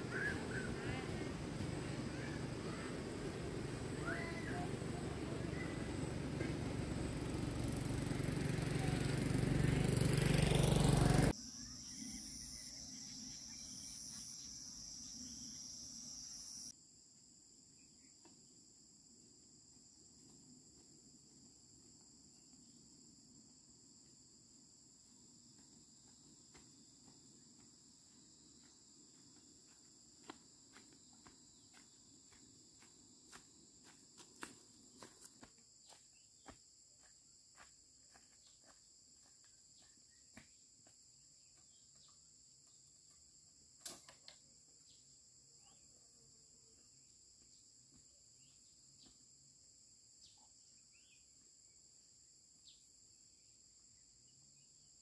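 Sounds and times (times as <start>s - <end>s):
crickets chirring: 11.3s - 55.0s.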